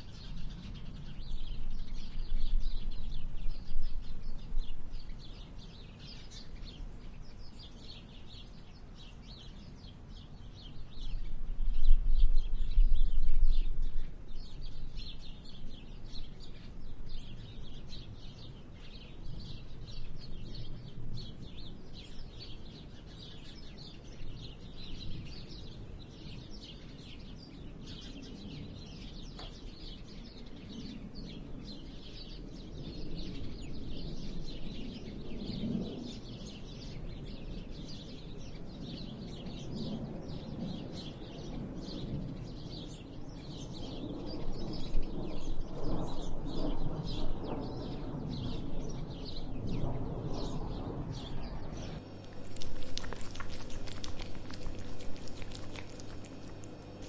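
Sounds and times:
small birds chirping: 0.0s - 57.0s
cat licking and chewing food: 52.0s - 57.0s.

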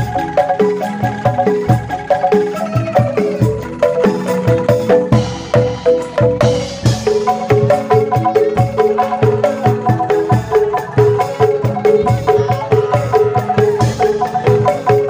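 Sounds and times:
xylophone melody: 0.0s - 15.0s
drum hits: 3.5s - 15.0s.

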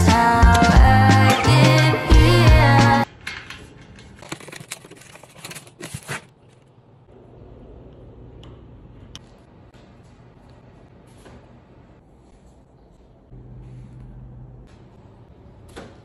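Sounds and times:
cardboard rustling: 4.2s - 6.5s.

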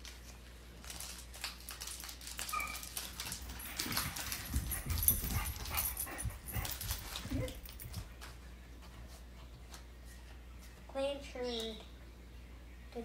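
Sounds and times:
foil pack crinkling and tearing: 0.0s - 4.4s.

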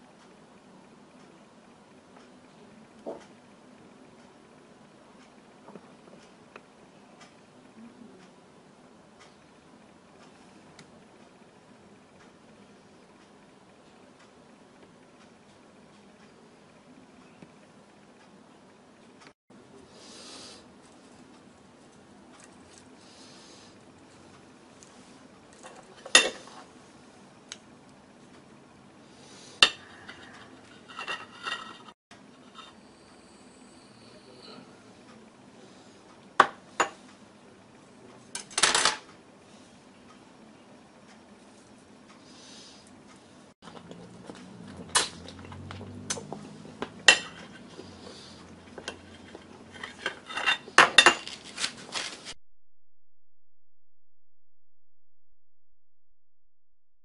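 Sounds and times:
bones clinking on porcelain dishes: 47.1s - 47.6s.

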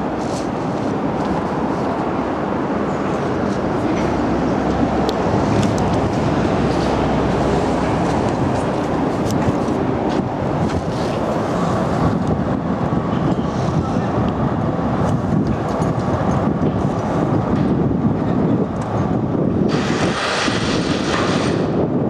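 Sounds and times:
traffic rumble: 0.0s - 22.0s
loud hiss: 19.7s - 21.7s.

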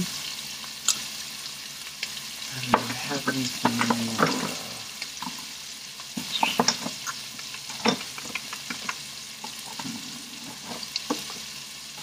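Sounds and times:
peppers sizzling in oil: 0.0s - 12.0s
sharp clicks and knocks: 6.6s - 9.0s.

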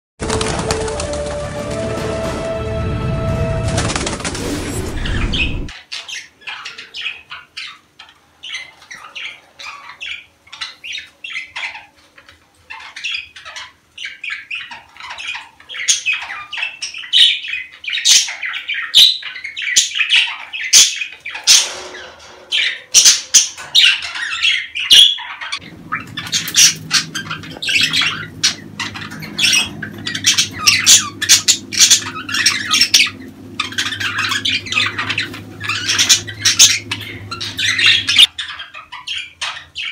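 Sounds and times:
low hum: 0.2s - 5.7s, 25.6s - 38.3s
budgerigars chattering and squawking: 5.0s - 39.9s.

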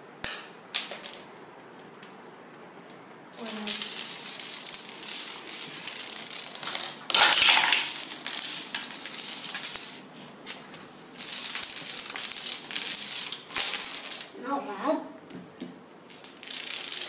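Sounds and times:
dominoes toppling on hard floor: 0.2s - 1.4s, 3.4s - 14.4s, 16.1s - 17.0s.

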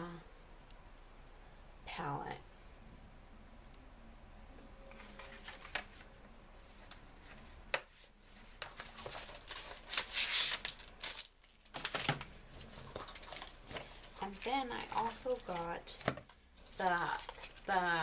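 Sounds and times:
bag rustling and crinkling: 8.2s - 18.0s.

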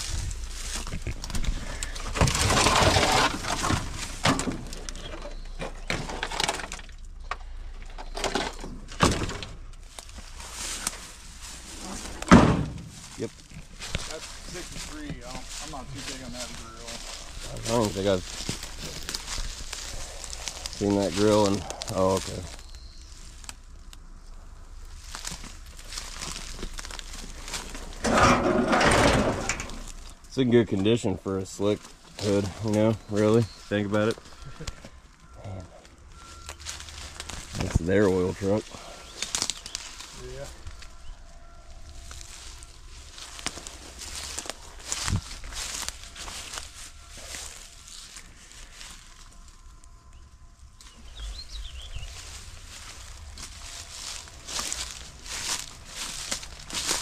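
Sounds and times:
loud rustling: 0.0s - 6.8s
brittle material cracking and crunching: 0.0s - 7.0s, 16.4s - 24.1s, 24.9s - 30.3s, 36.4s - 41.0s, 41.7s - 51.4s, 52.1s - 57.0s
footsteps outdoors: 0.0s - 57.0s.

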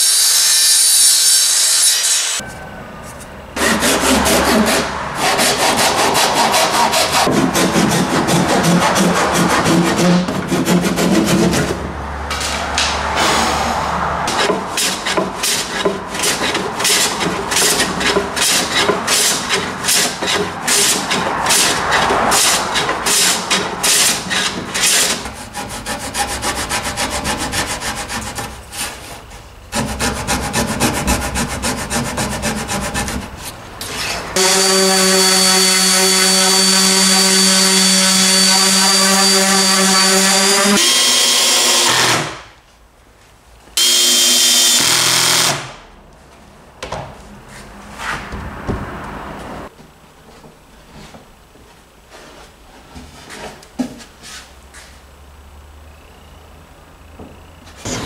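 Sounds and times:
hand tool stroking wood: 3.1s - 12.9s, 14.3s - 40.8s
pull saw rasping wood: 3.6s - 11.8s, 14.3s - 42.4s
power tool running: 34.4s - 42.4s, 43.8s - 45.8s.

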